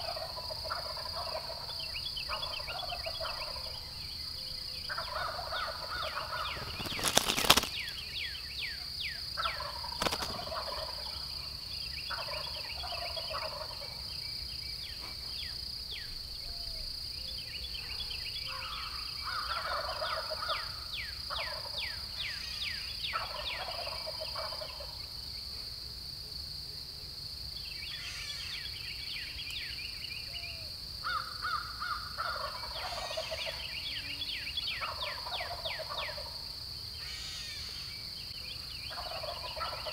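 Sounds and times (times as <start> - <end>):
turkeys gobbling: 0.0 - 3.8, 4.9 - 7.8, 9.4 - 11.3, 12.1 - 14.0, 19.4 - 20.6, 21.3 - 21.8, 23.1 - 25.0, 31.2 - 33.6, 34.8 - 36.4, 38.9 - 39.9
high falling chirps: 5.8 - 8.1.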